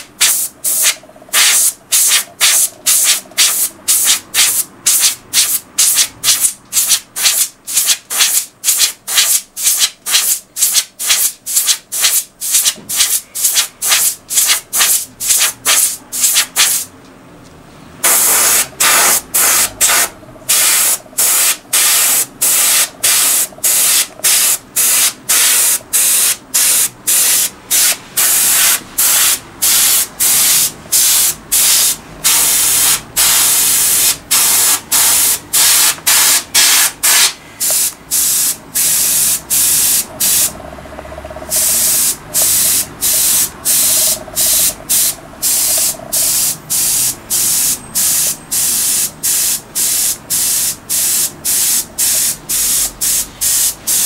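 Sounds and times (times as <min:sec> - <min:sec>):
airbrush hissing bursts: 0:00.0 - 0:16.9, 0:18.0 - 0:40.6, 0:41.5 - 0:54.0.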